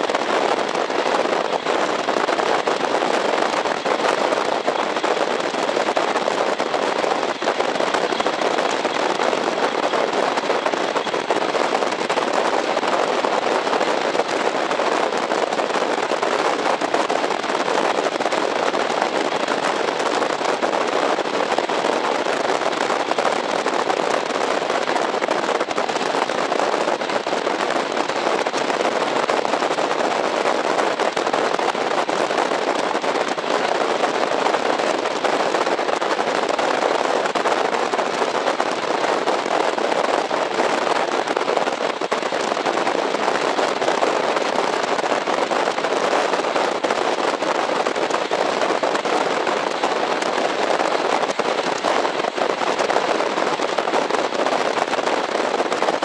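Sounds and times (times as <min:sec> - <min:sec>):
train wheels rattling on rails: 0:03.4 - 0:15.3.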